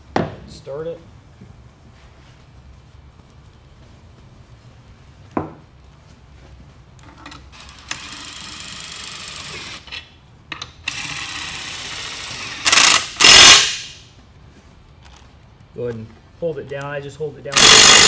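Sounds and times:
cordless power driver running: 17.5s - 18.0s.

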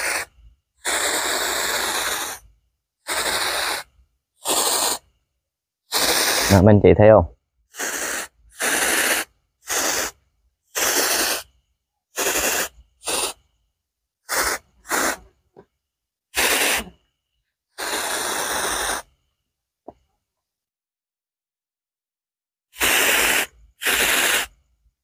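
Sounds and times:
sprayer hissing bursts: 0.0s - 2.4s, 3.0s - 5.1s, 5.9s - 6.8s, 7.7s - 13.5s, 14.2s - 15.4s, 16.4s - 17.0s, 17.8s - 19.1s, 22.7s - 24.6s.

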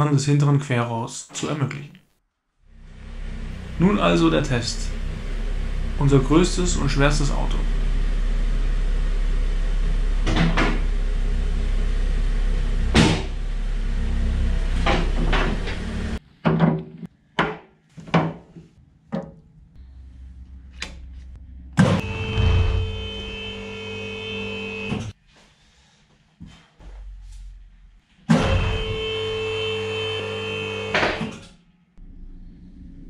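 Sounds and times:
hydraulic pump running: 19.8s - 25.1s.

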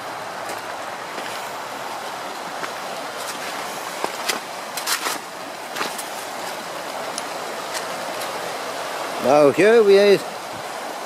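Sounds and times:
river rushing over stones: 0.0s - 11.0s.

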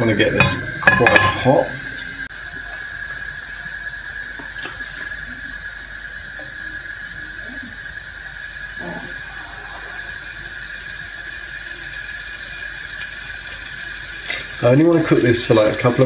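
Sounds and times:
mushrooms sizzling in hot oil: 0.0s - 16.0s
oil crackling: 7.1s - 16.0s.

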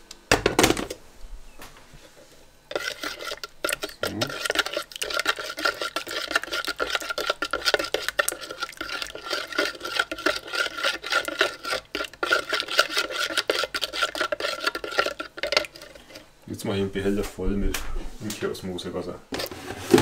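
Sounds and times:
spoon stirring in plastic jug: 2.7s - 16.3s, 19.4s - 20.0s.

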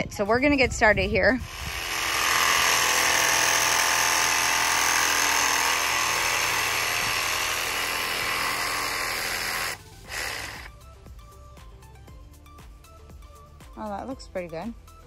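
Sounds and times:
jigsaw sawing through plastic pipe: 1.5s - 10.7s.

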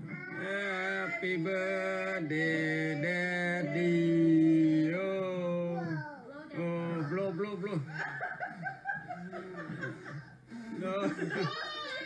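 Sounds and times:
man singing long notes: 0.1s - 6.0s.

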